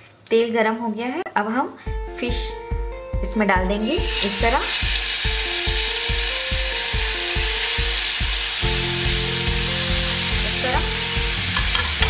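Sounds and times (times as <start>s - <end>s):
background music with steady beat: 1.8s - 12.0s
fish sizzling in hot oil: 4.0s - 12.0s.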